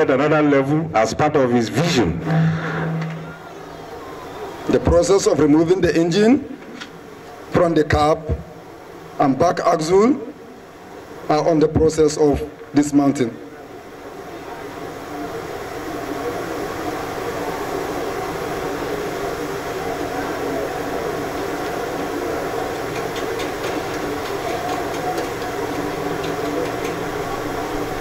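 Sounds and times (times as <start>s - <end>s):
rumbling outdoor din: 10.3s - 28.0s.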